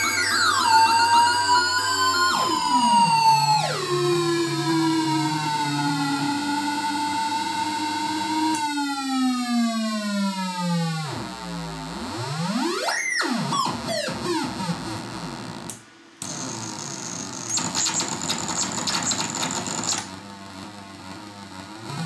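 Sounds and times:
harsh stuttering noise with whine: 0:00.0 - 0:09.0, 0:10.8 - 0:22.0
noise synthesizer gliding pitch: 0:00.0 - 0:15.6.

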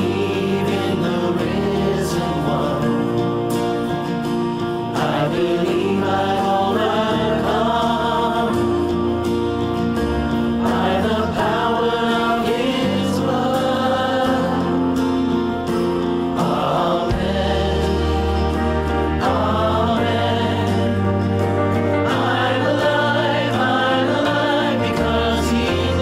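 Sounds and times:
bass guitar: 0:00.0 - 0:26.0
electric guitar: 0:00.0 - 0:26.0
keyboard: 0:00.0 - 0:26.0
voices singing together: 0:00.0 - 0:26.0
drums: 0:16.5 - 0:18.5.

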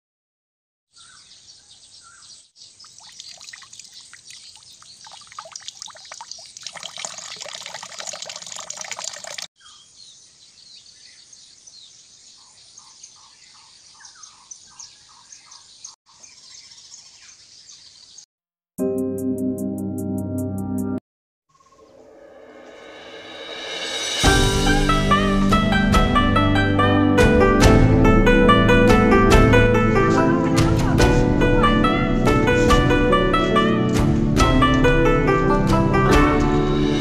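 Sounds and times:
bird chirping: 0:00.9 - 0:07.8, 0:09.6 - 0:18.3, 0:21.5 - 0:22.1.

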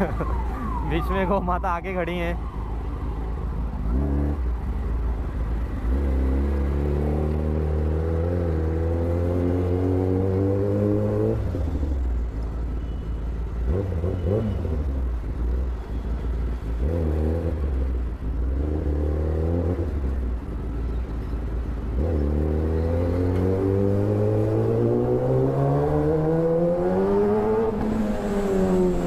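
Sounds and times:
motorcycle engine revving: 0:03.7 - 0:04.9, 0:05.6 - 0:12.0, 0:13.6 - 0:15.7, 0:16.7 - 0:20.2, 0:21.8 - 0:29.0.

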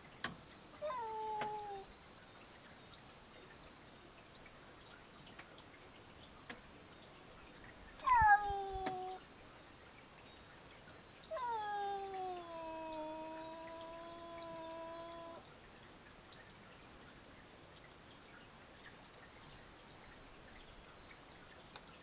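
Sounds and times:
cat meowing: 0:00.8 - 0:01.9, 0:08.0 - 0:09.2, 0:11.3 - 0:15.4.

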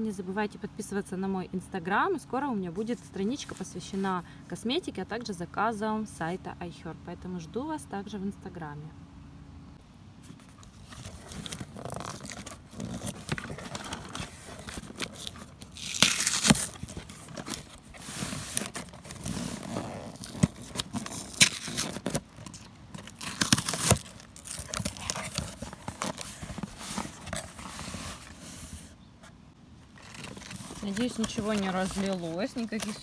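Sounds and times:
packing tape scratching and tearing: 0:10.6 - 0:28.7, 0:29.8 - 0:33.0.

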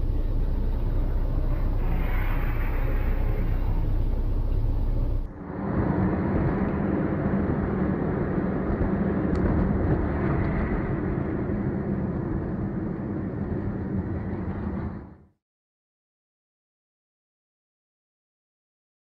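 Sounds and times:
car road and engine noise: 0:00.0 - 0:15.2.

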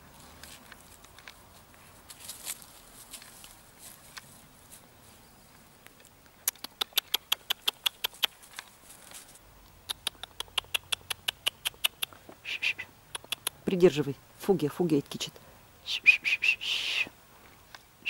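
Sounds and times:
puppy chomping: 0:06.4 - 0:08.5, 0:09.8 - 0:12.2, 0:13.1 - 0:13.7.

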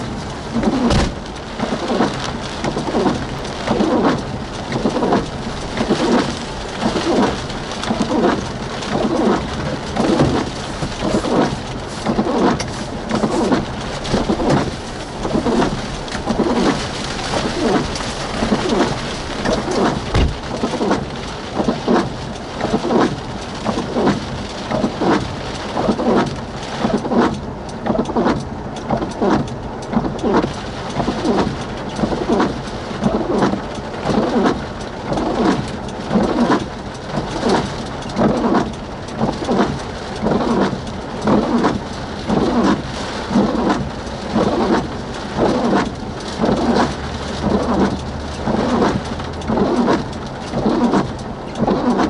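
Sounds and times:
rain on a vehicle: 0:00.0 - 0:52.0
low thump: 0:00.9 - 0:01.3, 0:20.1 - 0:20.6.

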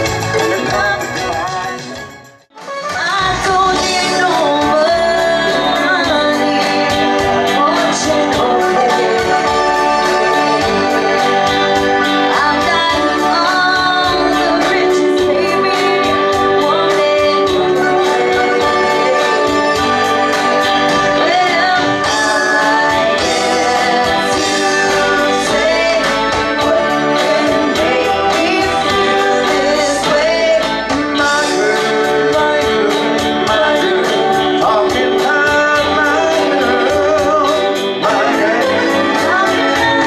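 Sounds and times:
live band music: 0:00.0 - 0:40.0
person singing: 0:02.6 - 0:40.0.

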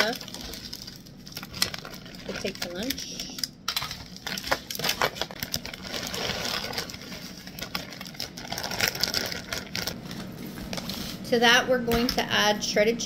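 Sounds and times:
frozen vegetables pouring into foil pan: 0:03.8 - 0:10.0.

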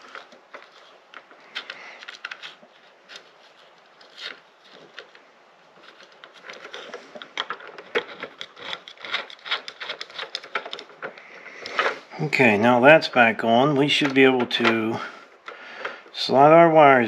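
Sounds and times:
fingers clicking and scraping plastic: 0:00.0 - 0:12.1.

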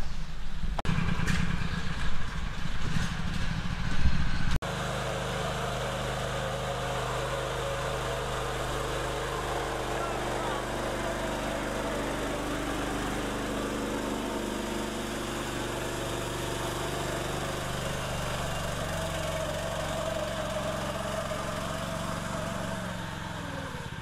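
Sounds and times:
small engine running under load: 0:00.9 - 0:24.0.

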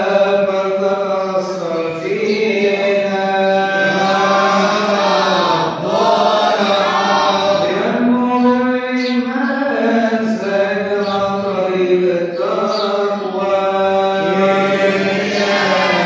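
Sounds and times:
man chanting a hymn: 0:00.0 - 0:16.0.

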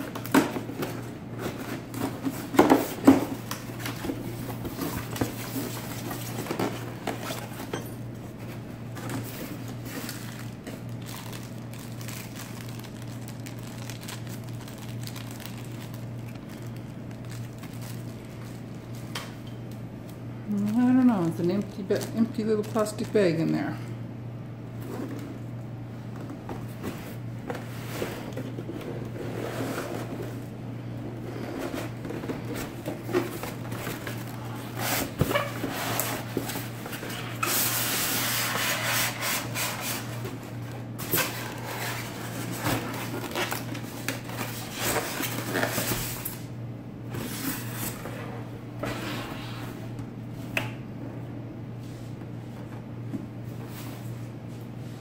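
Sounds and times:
cardboard rubbing and scraping: 0:26.8 - 0:30.3.

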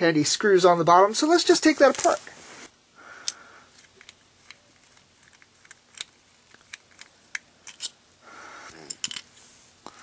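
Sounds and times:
scraping rustle: 0:01.8 - 0:02.8.

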